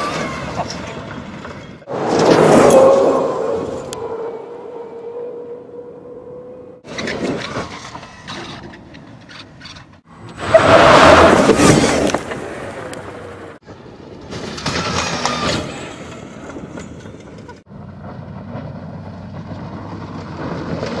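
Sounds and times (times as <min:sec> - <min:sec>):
tyres and rattle on rough ground: 0:00.0 - 0:04.5, 0:06.8 - 0:21.0.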